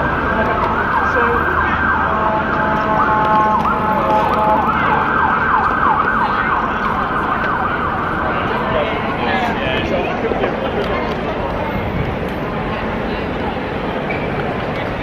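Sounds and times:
emergency siren yelping: 0.0 - 9.6
street and riding noise: 0.0 - 15.0.

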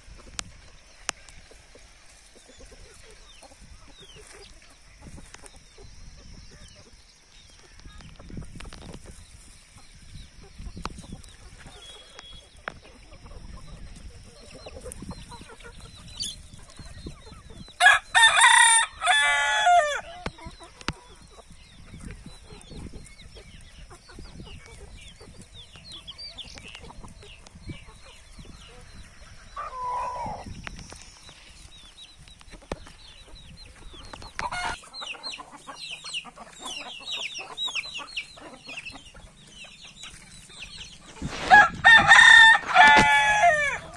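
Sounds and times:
hens clucking: 0.0 - 43.9
rooster crowing: 17.8 - 20.1, 41.4 - 43.9.

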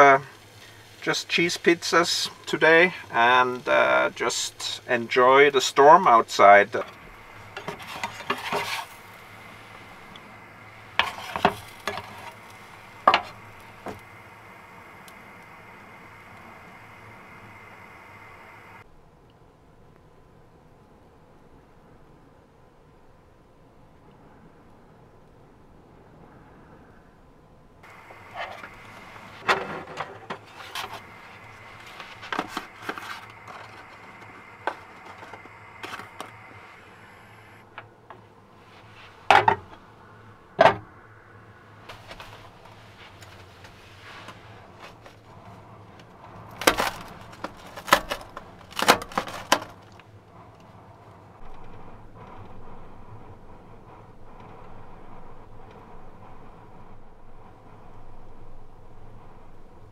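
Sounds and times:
steady low hum: 0.0 - 59.9
spatula scraping a frying pan: 7.5 - 9.2, 11.0 - 12.4.

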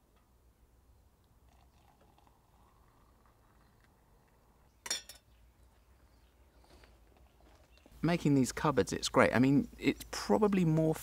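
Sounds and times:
water trickling into cylinder: 0.9 - 4.8.

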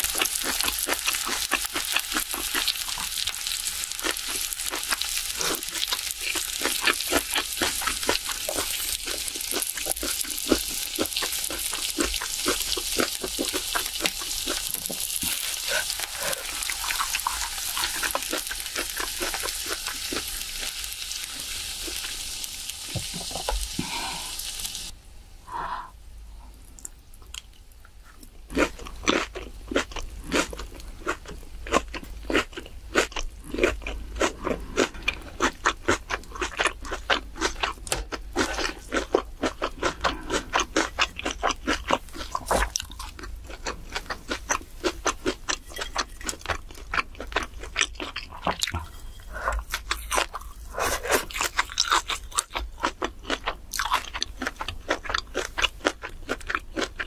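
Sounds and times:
meat sizzling on a grill: 0.0 - 24.9
faint eating sounds: 0.0 - 57.0.

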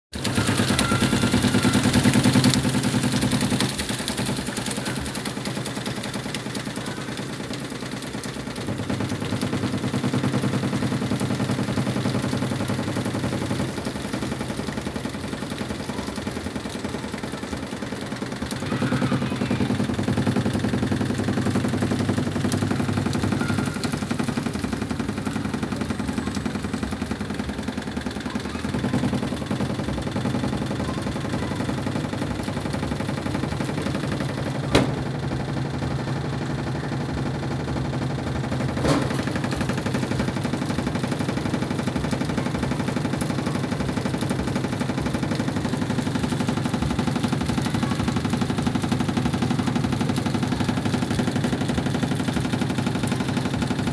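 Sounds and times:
washing machine drum spinning: 0.1 - 53.9.

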